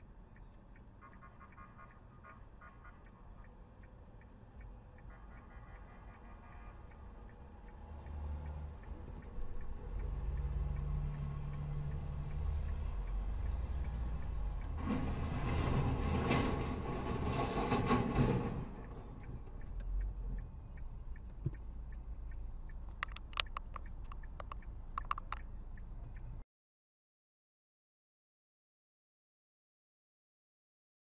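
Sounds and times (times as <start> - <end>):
truck engine rumble: 5.0 - 26.4
sharp clicks: 22.3 - 26.3.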